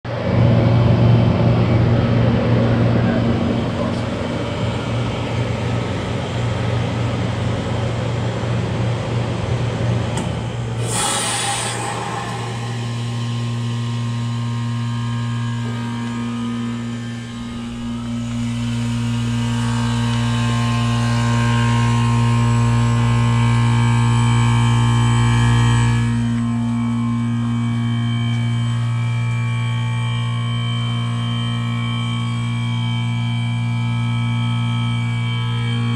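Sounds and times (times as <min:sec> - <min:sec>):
compressor hum: 0:00.1 - 0:35.9
rush of airflow: 0:10.7 - 0:14.6
refrigerant hiss: 0:10.8 - 0:13.1.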